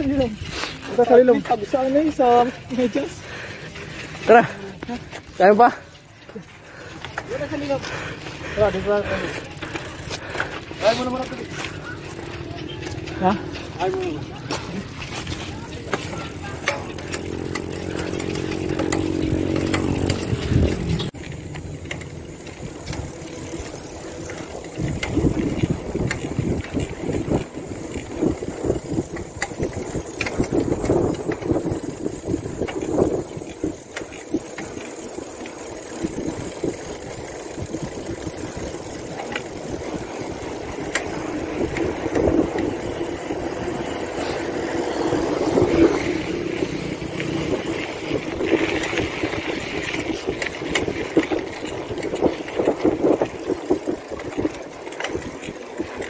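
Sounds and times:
bicycle road noise: 0.0 - 56.0
engine hum: 1.2 - 56.0
wind rumble on microphone: 17.6 - 34.9, 35.8 - 56.0.

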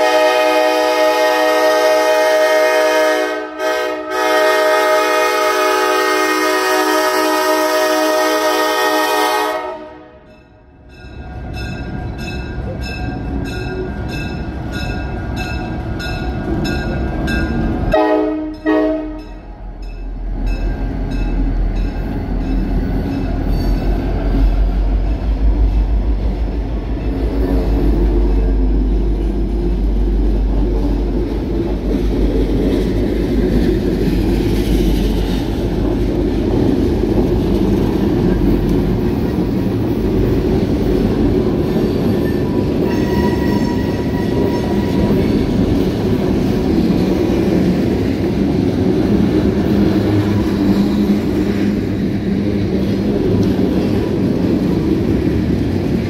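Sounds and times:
train horn: 0.0 - 10.3, 17.9 - 19.4, 42.8 - 45.0
diesel locomotives rumbling: 0.0 - 56.0.

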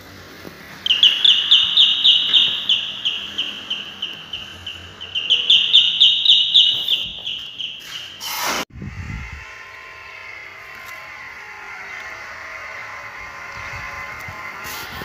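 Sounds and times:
electronic doorbell warbling: 0.9 - 7.9.

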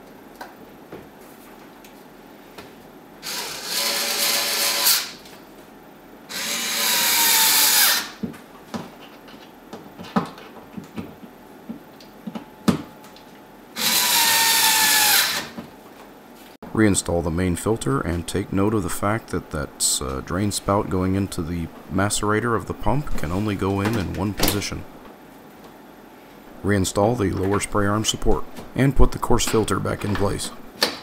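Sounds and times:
cordless screwdriver motor whine: 3.2 - 5.2, 6.3 - 8.2, 13.8 - 15.5.

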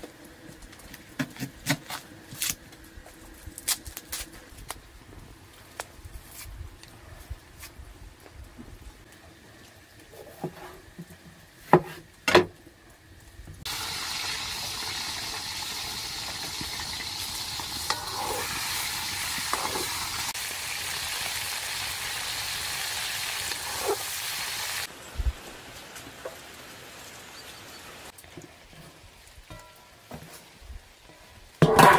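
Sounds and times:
food sizzling in a pan: 13.6 - 28.2.

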